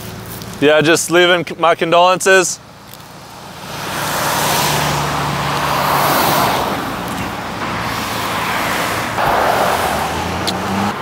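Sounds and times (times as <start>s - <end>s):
car driving past: 3.8s - 11.0s.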